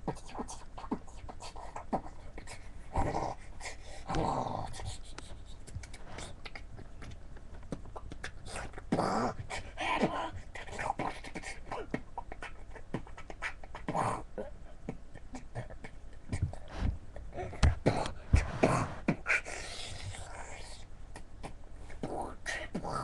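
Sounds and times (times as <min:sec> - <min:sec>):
beatboxing clicks and vocal bursts: 0:00.0 - 0:23.0
beatbox kick-drum thumps: 0:04.1 - 0:14.2, 0:14.9 - 0:19.4.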